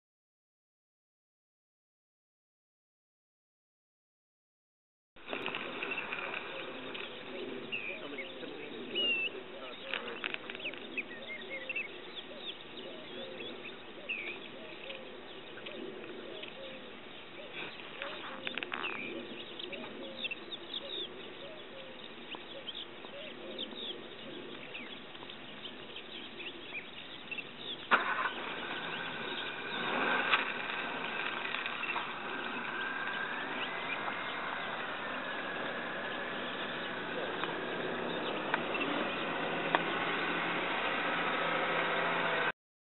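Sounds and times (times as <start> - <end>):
low murmur: 5.2 - 20.2
bird chirps: 5.3 - 40.4.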